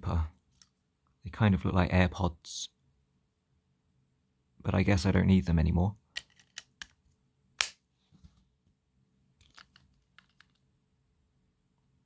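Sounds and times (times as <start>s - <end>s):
handling of plastic cases: 9.4s - 10.6s.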